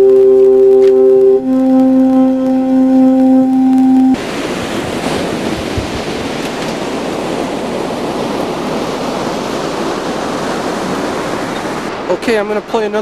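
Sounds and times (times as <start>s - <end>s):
alto saxophone note: 0.0s - 4.2s
ocean surf breaking: 0.0s - 13.0s.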